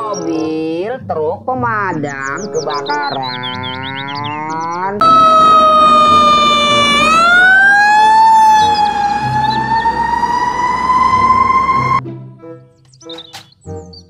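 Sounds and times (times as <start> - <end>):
fire engine siren wailing: 5.0 - 12.0.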